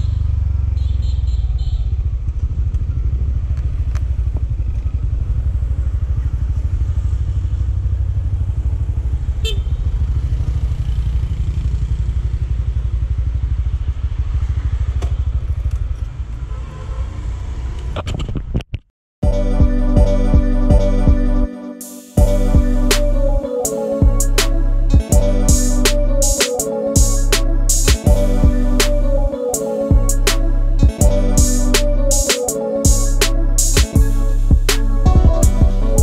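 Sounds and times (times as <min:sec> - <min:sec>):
motorbike engine rumble: 0:00.0 - 0:16.6
road noise: 0:00.0 - 0:18.8, 0:22.1 - 0:36.0
music with steady beat: 0:19.2 - 0:36.0.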